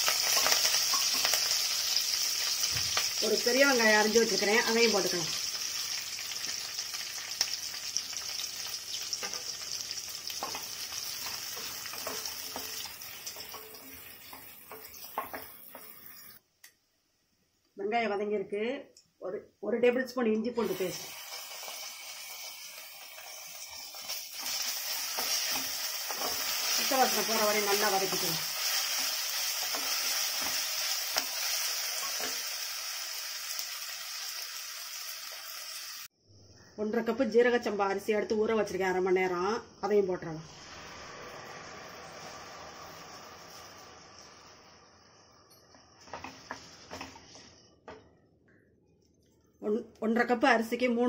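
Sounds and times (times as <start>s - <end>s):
onions sizzling in oil: 0.0s - 16.4s, 20.6s - 36.1s, 39.8s - 47.7s.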